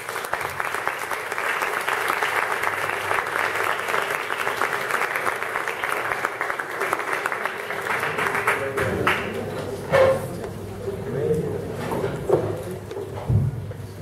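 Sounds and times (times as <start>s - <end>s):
audience applause: 0.0s - 9.5s.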